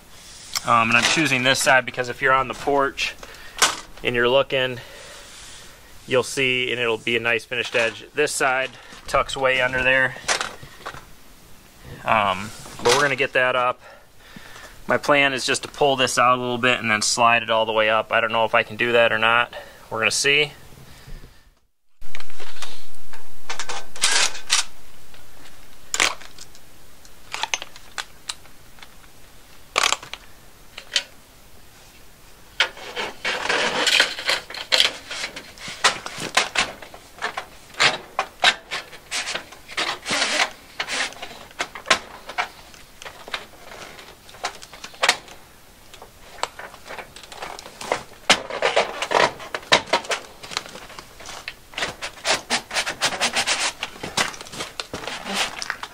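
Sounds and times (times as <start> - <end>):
metal scraping on metal: 32.6 - 45.2.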